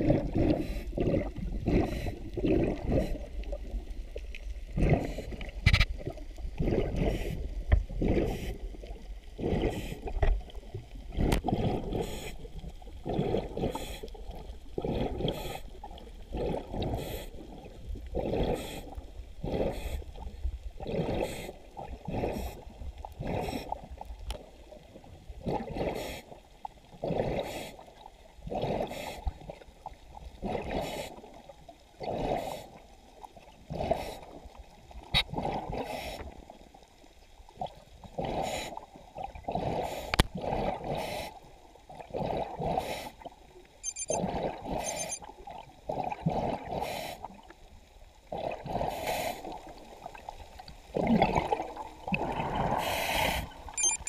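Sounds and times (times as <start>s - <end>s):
muffled underwater gurgling: 0.0s - 29.6s, 48.3s - 54.0s.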